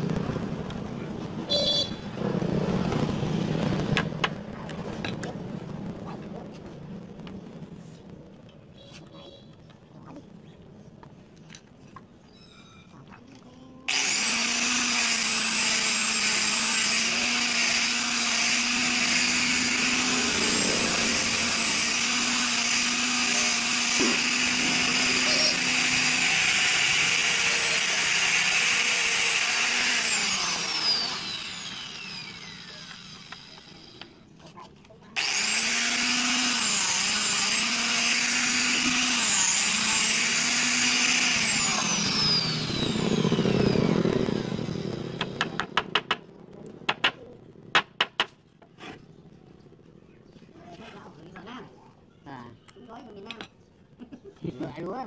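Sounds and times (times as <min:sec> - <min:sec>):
angle grinder grinding wood: 0:13.9 - 0:34.3, 0:35.2 - 0:45.6.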